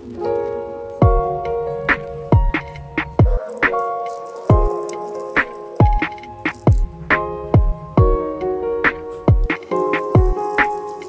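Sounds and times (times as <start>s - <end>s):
kick drum and percussion beat: 1.0s - 1.3s, 2.3s - 3.8s, 4.5s - 4.8s, 5.8s - 10.5s.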